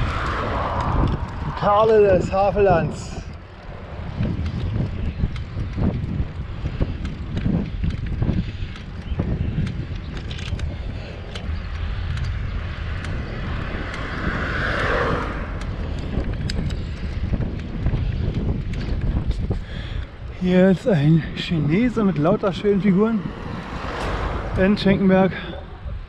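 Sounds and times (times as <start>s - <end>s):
car passing close by: 0.0s - 1.6s, 13.4s - 15.7s, 23.2s - 25.1s
bicycle clicks and rattles: 0.0s - 26.0s
wind rumbling on microphone: 0.0s - 26.0s.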